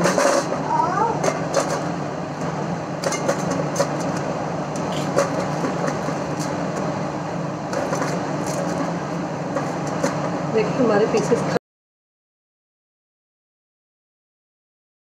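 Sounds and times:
steady low hum: 0.0s - 11.6s.

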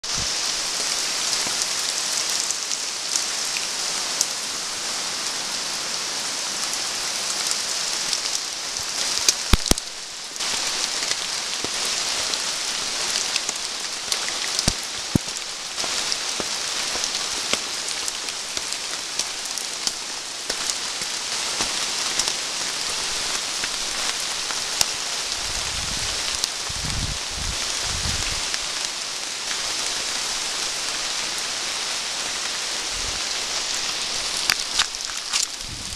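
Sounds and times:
rain on foliage: 0.0s - 35.9s
low rumbling: 35.4s - 35.9s.

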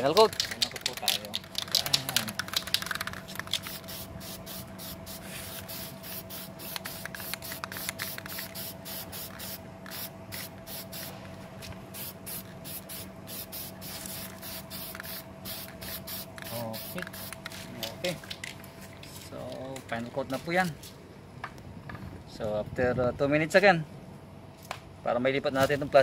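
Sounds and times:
spray can hissing: 0.3s - 11.2s, 11.9s - 17.7s.

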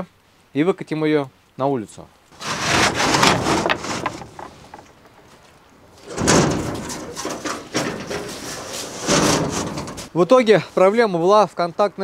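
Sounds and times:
steel garage door opening: 2.4s - 4.8s, 6.0s - 10.1s.

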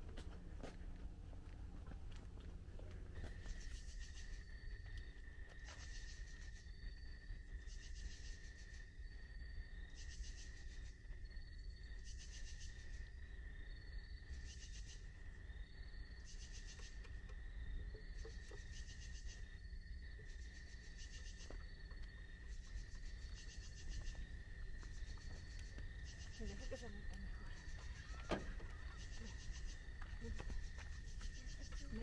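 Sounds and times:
low background rumble: 0.0s - 5.7s
insects high-pitched drone: 3.2s - 32.0s
pulsed insect chirp: 3.2s - 32.0s.

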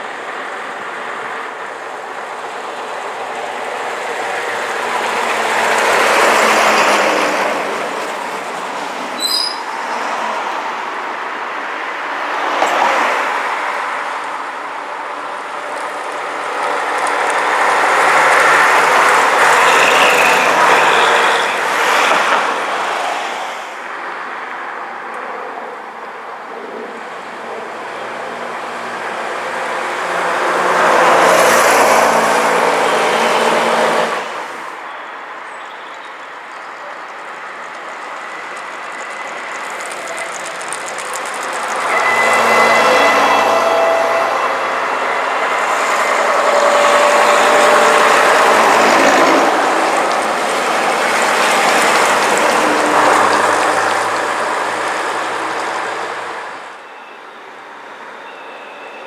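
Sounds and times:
buses and cars driving past: 0.0s - 59.0s
bus engine drone: 12.8s - 56.8s.

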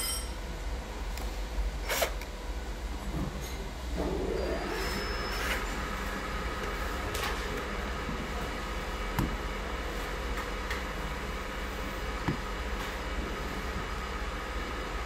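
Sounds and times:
cordless drill motor running: 1.8s - 2.3s.

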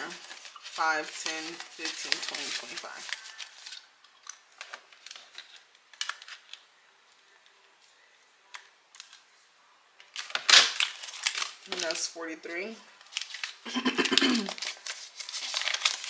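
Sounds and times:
banknotes rustling: 0.0s - 3.9s, 10.8s - 12.3s, 13.0s - 16.0s.

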